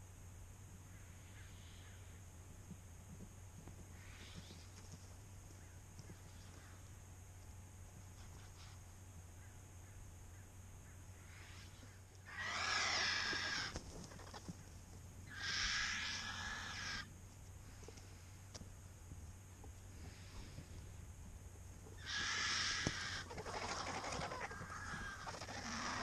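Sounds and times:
vultures hissing rasps: 0:00.9 - 0:02.2, 0:04.0 - 0:04.7, 0:11.2 - 0:14.5, 0:15.2 - 0:17.1, 0:22.0 - 0:26.0.

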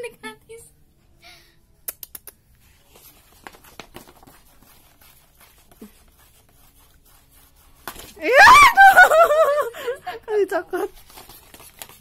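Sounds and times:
soft rustling: 0:02.6 - 0:08.4, 0:10.7 - 0:12.0.

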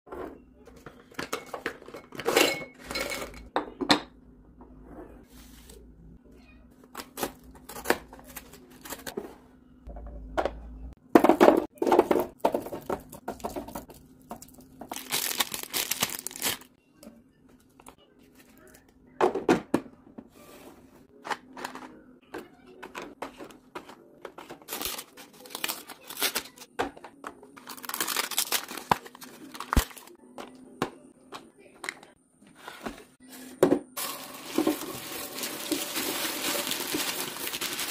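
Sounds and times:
items knocking into plastic bins: 0:10.0 - 0:14.0, 0:33.6 - 0:37.9
plastic wrappers crinkling: 0:13.9 - 0:16.8, 0:24.6 - 0:26.7, 0:27.5 - 0:30.2, 0:34.0 - 0:37.9.

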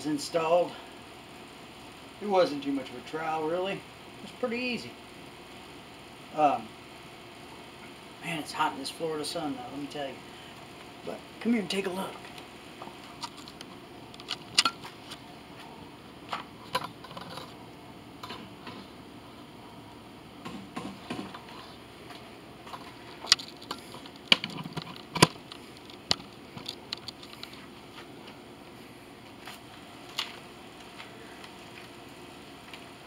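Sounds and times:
low background hiss: 0:00.0 - 0:20.5.

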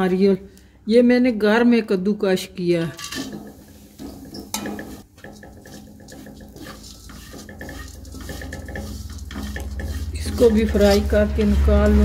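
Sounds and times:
metal spoon scraping a pan: 0:02.8 - 0:12.0.

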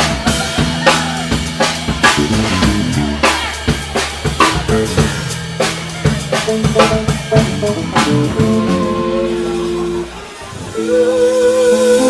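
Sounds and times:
drum kit playing busy beat: 0:00.0 - 0:12.0
live band music: 0:00.0 - 0:12.0.

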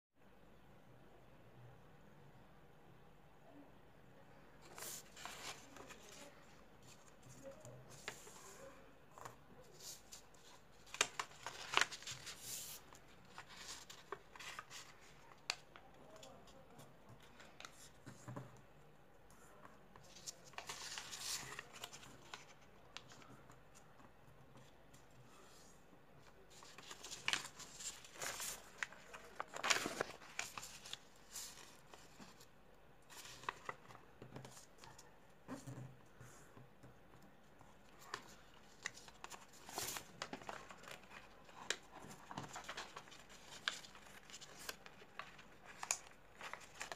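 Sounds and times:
paper being folded and creased: 0:04.6 - 0:18.1, 0:19.9 - 0:24.0, 0:25.3 - 0:35.6, 0:37.4 - 0:46.9.

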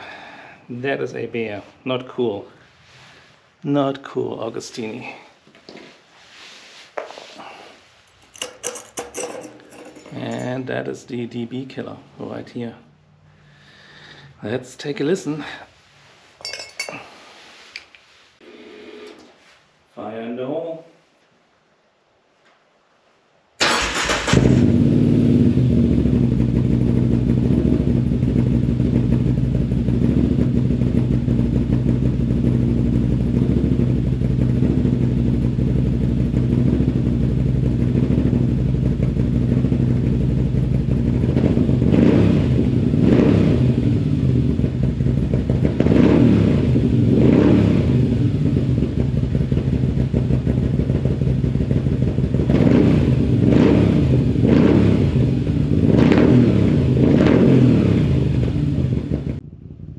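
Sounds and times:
motorcycle engine revving: 0:23.7 - 0:59.9
motorcycle engine idling: 0:26.1 - 0:41.3, 0:44.0 - 0:45.8, 0:48.3 - 0:52.6, 0:58.6 - 0:59.9.

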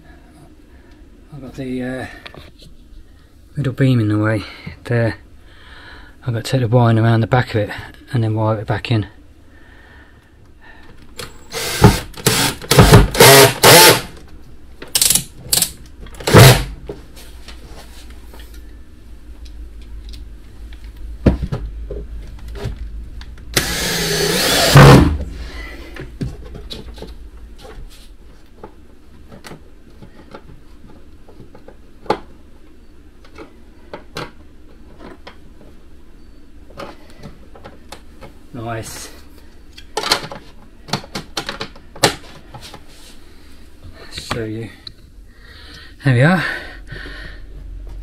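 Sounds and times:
cordless drill running: 0:11.4 - 0:14.1, 0:23.6 - 0:25.2.

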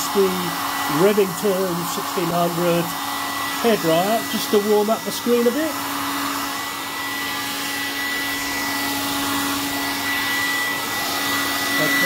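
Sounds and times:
hair dryer running: 0:00.0 - 0:12.0.

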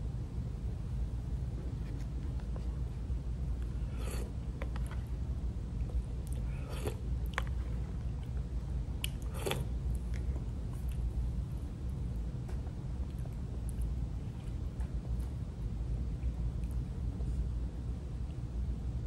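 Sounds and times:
steady low rumble: 0:00.0 - 0:19.0
chewing: 0:05.8 - 0:11.1, 0:12.5 - 0:15.5.

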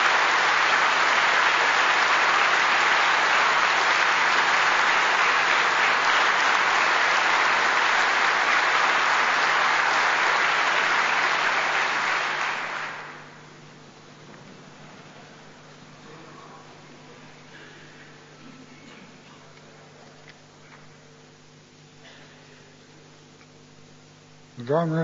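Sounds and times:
audience applause: 0:00.0 - 0:13.4.

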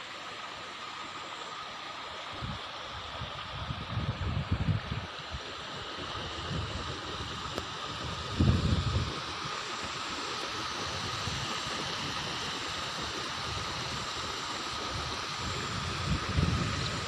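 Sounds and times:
small waterfall rushing: 0:00.0 - 0:17.0
wind buffeting microphone: 0:03.2 - 0:05.3, 0:06.0 - 0:09.5, 0:10.6 - 0:17.0.

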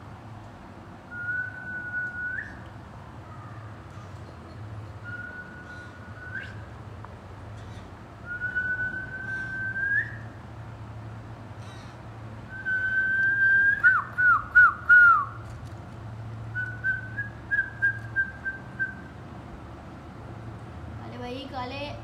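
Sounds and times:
person whistling: 0:08.3 - 0:10.2, 0:12.5 - 0:15.3.

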